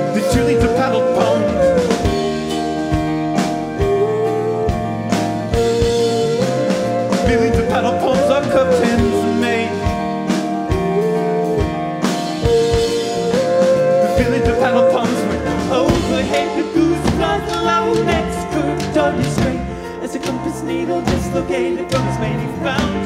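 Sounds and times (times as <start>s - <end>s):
person singing: 0.0s - 2.9s, 3.7s - 23.0s
live band playing: 0.0s - 23.0s
drum hits: 12.0s - 23.0s.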